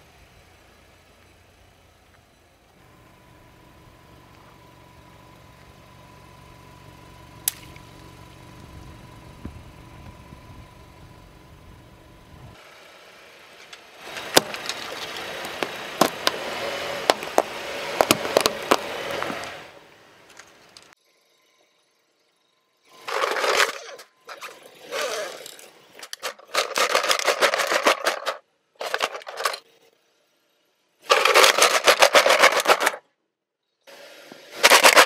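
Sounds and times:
car engine humming: 0.0 - 21.0
tyre crushing brittle object: 14.1 - 19.5.

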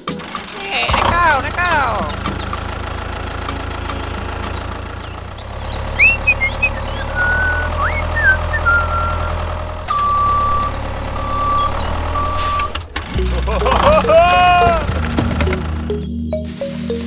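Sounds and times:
tractor engine humming: 0.0 - 17.0
reversing beep: 6.0 - 12.8.

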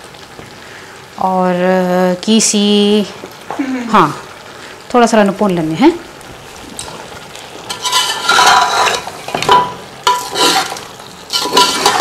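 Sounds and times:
food sizzling in a pot: 0.0 - 12.0
spoon scraping a pot: 7.7 - 12.0.

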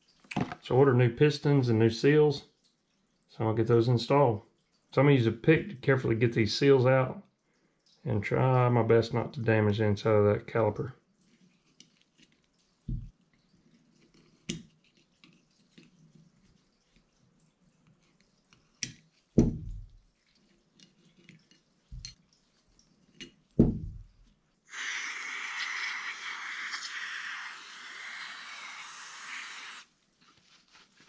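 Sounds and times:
dull knocks: 23.6 - 24.0
aerosol spray hiss: 24.7 - 29.9.

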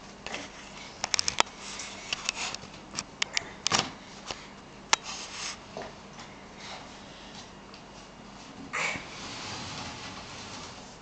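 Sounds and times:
plastic jerrycan pushed across tiles: 9.0 - 11.0.

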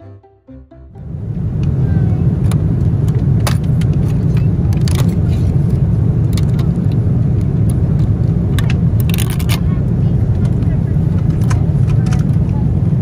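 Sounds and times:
vehicle rumble from inside: 1.0 - 13.0
small clicks and rattles: 8.0 - 9.7.

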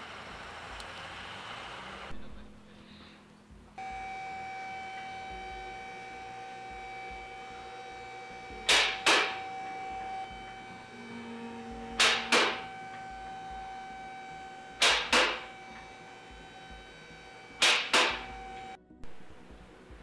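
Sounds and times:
hydraulic pump humming: 3.7 - 18.8
sharp clacks: 8.7 - 9.4, 14.8 - 15.9, 17.6 - 18.4.

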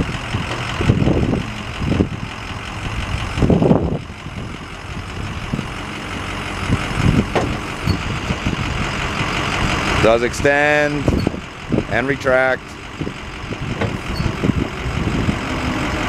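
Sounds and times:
diesel engine idling: 0.0 - 16.0
hydraulic lift knocks: 7.2 - 8.0.

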